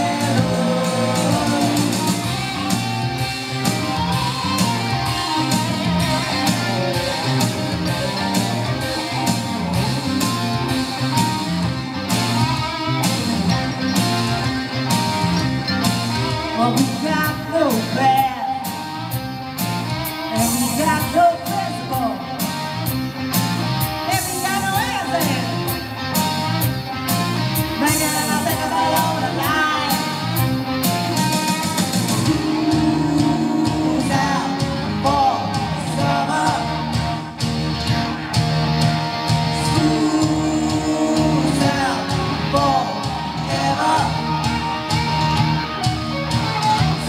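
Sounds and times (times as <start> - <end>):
steady drum beat: 0.0 - 16.8, 27.6 - 47.0
electric guitar: 0.0 - 47.0
woman singing: 20.3 - 22.3, 27.8 - 30.2, 32.2 - 36.6, 39.6 - 42.9.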